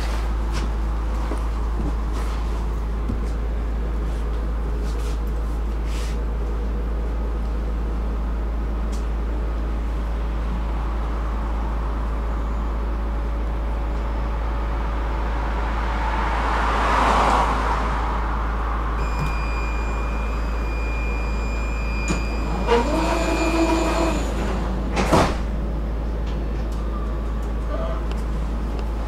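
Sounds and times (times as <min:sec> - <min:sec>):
high door-warning tone: 0:19.0 - 0:24.6
tram doors sliding shut: 0:19.0 - 0:28.4.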